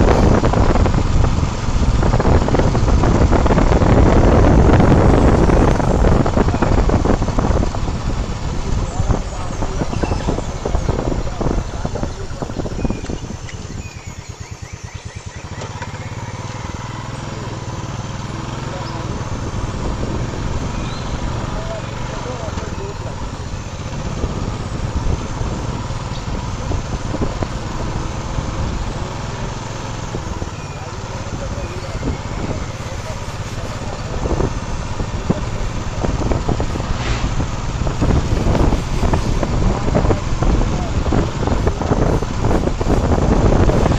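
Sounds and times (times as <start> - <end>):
wind buffeting microphone: 0.0 - 17.2, 18.1 - 43.9
vehicle engine idling: 0.0 - 43.9
low rumble: 33.8 - 43.9.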